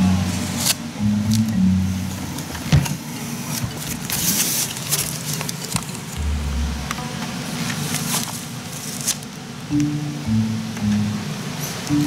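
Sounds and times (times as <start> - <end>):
low background hum: 0.0 - 12.0
short low rumble: 6.2 - 7.9.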